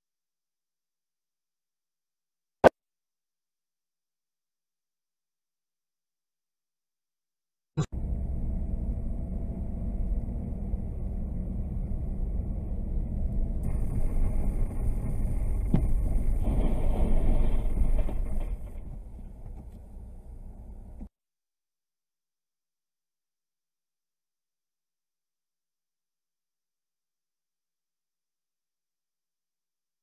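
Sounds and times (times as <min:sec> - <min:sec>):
car road and tyre rumble: 0:08.0 - 0:21.1.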